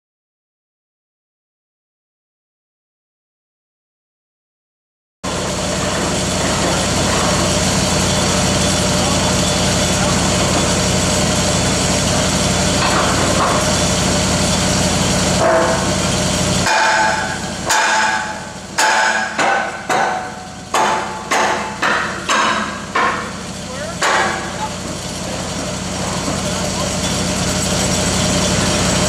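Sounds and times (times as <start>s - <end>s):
engine running: 5.2s - 29.0s
sledgehammer striking steel pipe: 15.3s - 24.6s.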